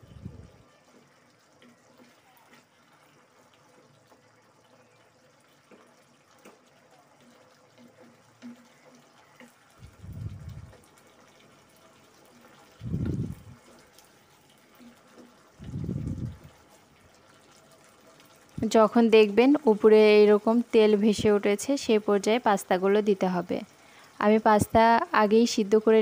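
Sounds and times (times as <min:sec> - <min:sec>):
spatula stirring sauce: 0:00.9 - 0:09.8.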